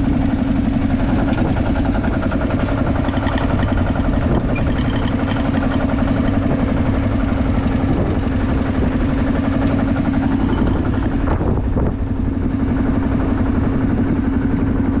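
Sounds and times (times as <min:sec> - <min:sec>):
diesel tractor engine running: 0:00.0 - 0:15.0.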